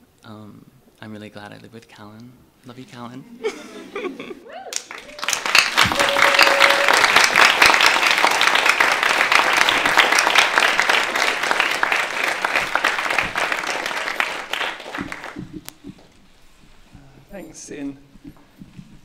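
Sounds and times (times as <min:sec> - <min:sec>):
audience applauding: 0:04.6 - 0:16.2.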